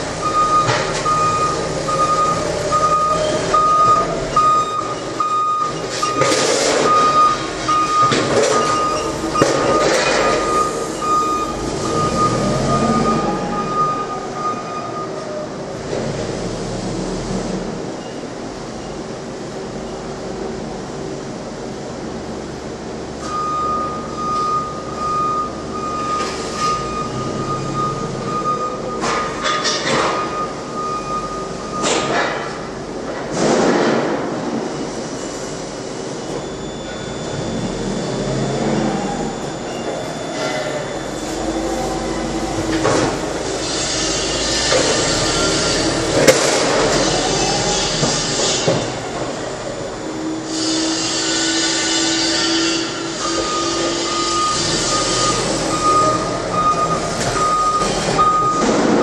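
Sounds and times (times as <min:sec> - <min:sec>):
forklift warning alarm tone: 0:00.0 - 0:15.4, 0:23.2 - 0:32.1, 0:36.3 - 0:46.1, 0:51.9 - 0:59.0
metal clanks of wheels: 0:02.9 - 0:12.3, 0:26.2 - 0:30.7, 0:39.7 - 0:49.4.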